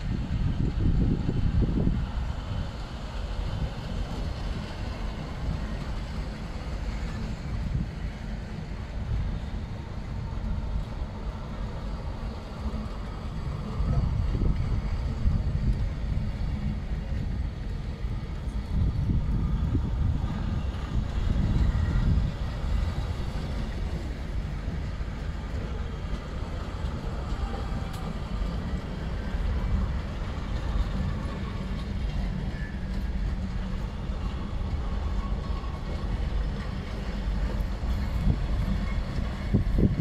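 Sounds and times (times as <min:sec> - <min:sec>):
train wheels rumbling on rails: 0:00.0 - 0:40.0.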